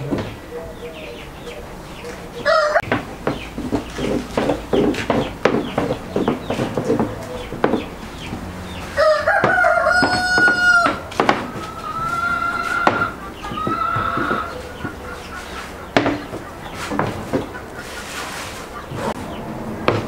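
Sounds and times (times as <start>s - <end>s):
rooster crowing: 2.4s - 2.9s, 8.7s - 15.2s
rolling pin knocking on board: 2.8s - 7.9s, 9.4s - 11.5s.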